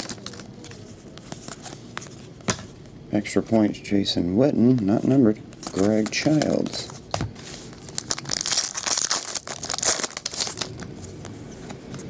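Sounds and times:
foil wrapper tearing and crinkling: 0:00.0 - 0:00.5, 0:07.8 - 0:10.9.

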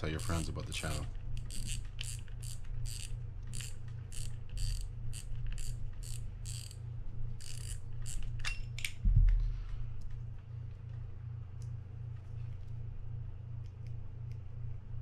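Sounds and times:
fishing reel drag clicking: 0:00.0 - 0:06.8, 0:07.4 - 0:08.3.

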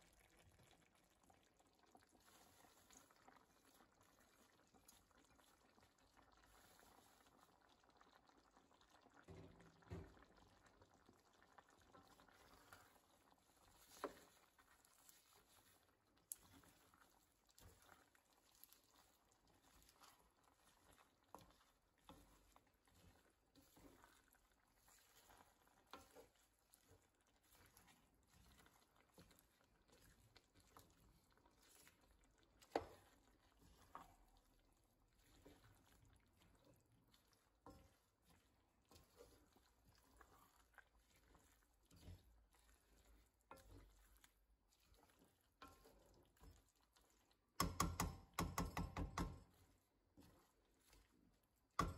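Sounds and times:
leaves rustling in stew: 0:00.0 - 0:51.9
wooden spoon tapping pan: 0:47.6 - 0:49.6.

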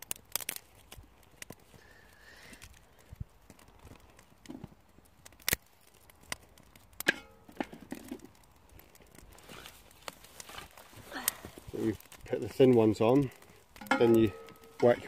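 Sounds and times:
sticks cracking and knocking: 0:00.0 - 0:01.8, 0:03.4 - 0:15.0
metallic ring of fire bowl: 0:07.0 - 0:10.8, 0:11.8 - 0:15.0.

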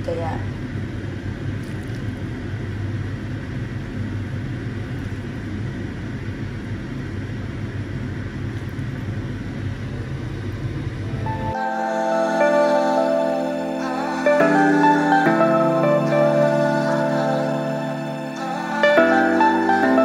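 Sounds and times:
low mechanical hum: 0:00.0 - 0:11.6
soft music with held notes: 0:11.3 - 0:20.0.

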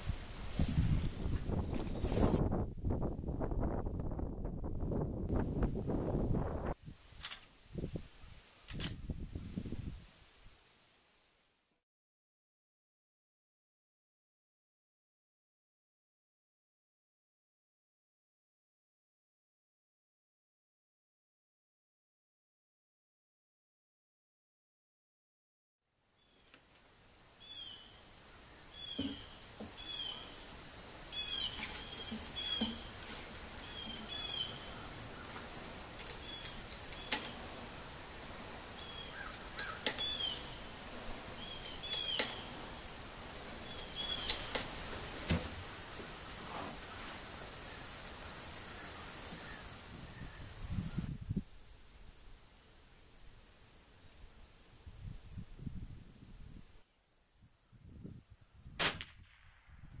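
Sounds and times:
high insect drone: 0:00.0 - 0:04.2, 0:04.9 - 0:11.5, 0:25.9 - 0:58.8
bird calling: 0:27.4 - 0:37.4, 0:38.7 - 0:42.9, 0:43.5 - 0:45.0.

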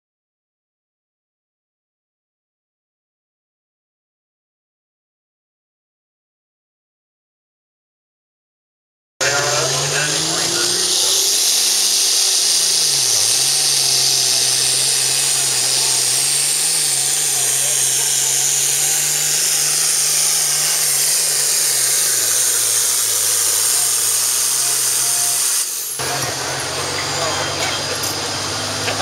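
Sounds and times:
high whine: 0:09.2 - 0:29.0
tractor engine at full throttle: 0:09.2 - 0:29.0.

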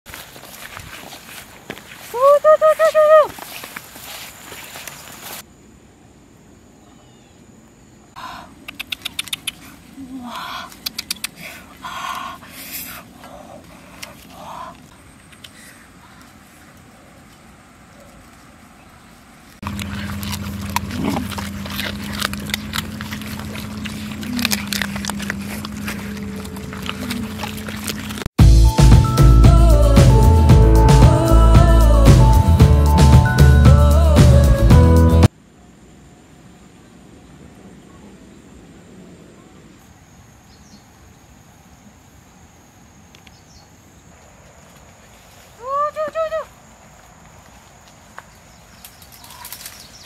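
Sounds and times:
sharp irregular clicks: 0:08.6 - 0:09.6
high insect whine: 0:19.6 - 0:28.2
dogs chewing and crunching bones: 0:19.6 - 0:28.3
steady low hum: 0:19.6 - 0:28.3
bird chirp: 0:48.2 - 0:50.0.

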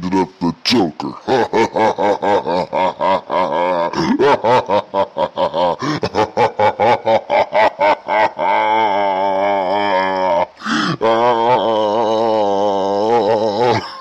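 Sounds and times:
wavering groan: 0:08.6 - 0:14.0.

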